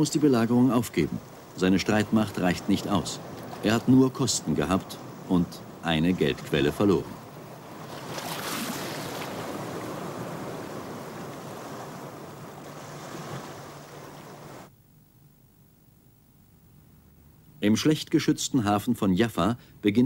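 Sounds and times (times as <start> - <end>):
waves breaking on rocky beach: 0.0 - 14.7.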